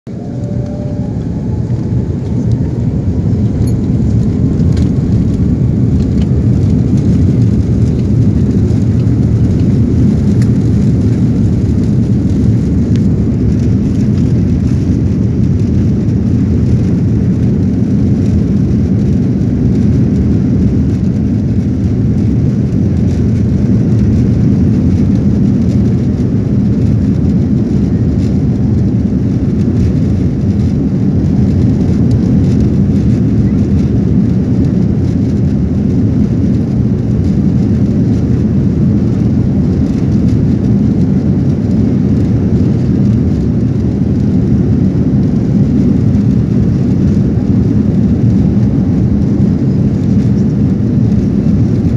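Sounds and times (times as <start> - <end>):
jet engines and wheels rumbling: 0.0 - 51.9
jet engine whine rising in pitch: 0.1 - 8.5, 44.6 - 51.9.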